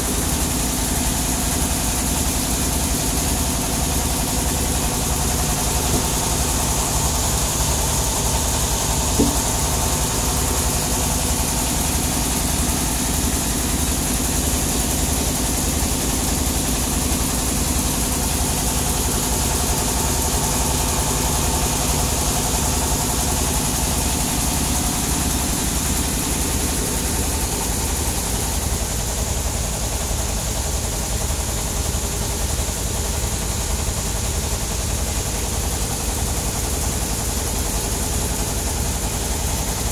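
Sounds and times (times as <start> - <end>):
sawmill engine idling: 0.0 - 39.9
brief knock: 5.9 - 6.3, 9.1 - 9.6.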